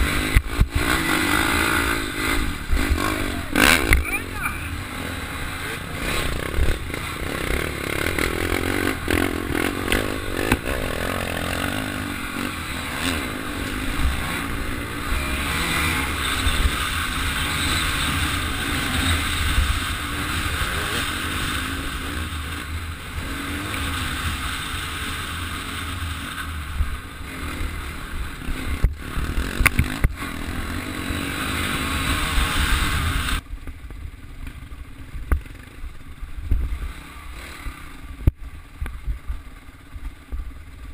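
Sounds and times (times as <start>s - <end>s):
dirt bike engine revving: 0.0s - 33.5s, 34.4s - 39.9s.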